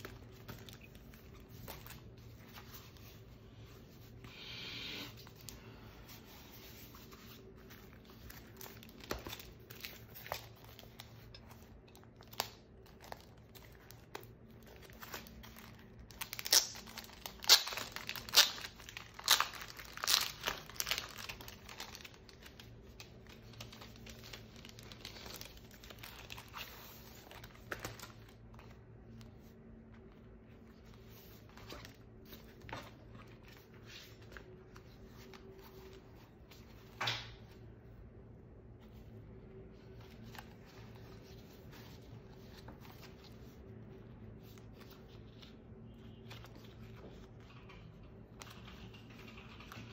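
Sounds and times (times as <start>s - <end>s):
paper and plastic crinkling: 0.0s - 4.1s, 5.3s - 36.9s.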